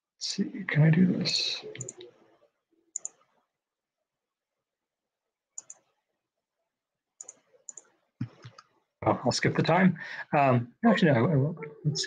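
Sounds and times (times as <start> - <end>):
computer mouse clicking: 1.7 - 2.1, 3.0 - 3.3, 5.6 - 6.0, 7.2 - 8.7.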